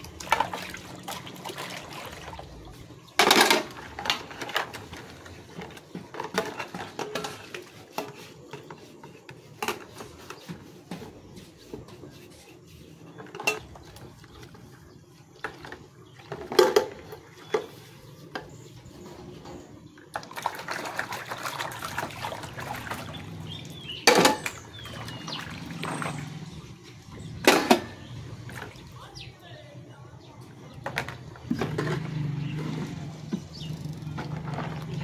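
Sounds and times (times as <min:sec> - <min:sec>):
water sloshing and splashing: 0:00.0 - 0:29.7, 0:30.4 - 0:35.0.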